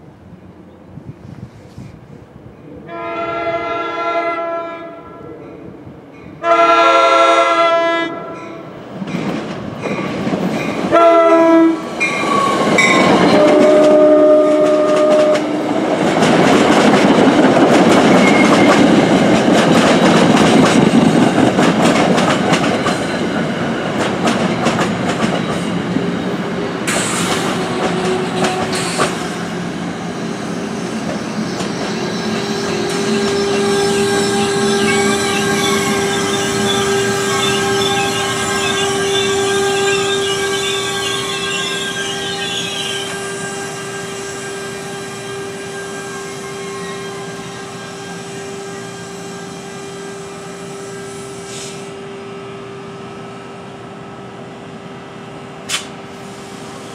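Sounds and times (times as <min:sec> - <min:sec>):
train rumbling past: 0:00.0 - 0:56.9
train horn: 0:02.8 - 0:05.4, 0:06.4 - 0:08.6, 0:10.9 - 0:15.7, 0:27.4 - 0:29.2, 0:32.1 - 0:52.0.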